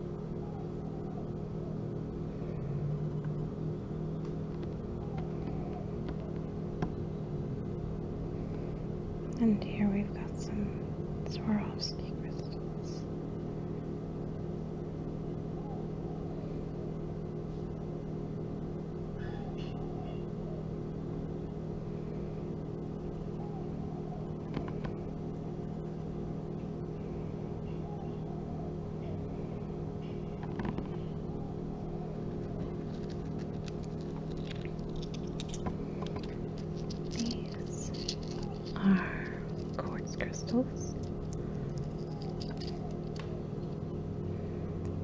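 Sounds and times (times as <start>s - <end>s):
low background hum: 0.0s - 45.0s
small crystals clicking: 32.4s - 43.8s.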